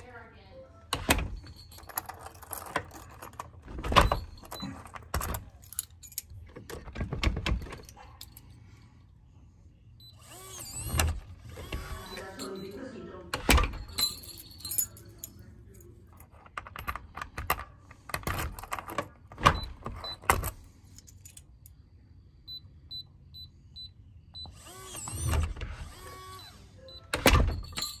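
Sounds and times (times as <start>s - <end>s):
lock clicks and knocks: 0.9s - 8.0s, 16.2s - 20.6s.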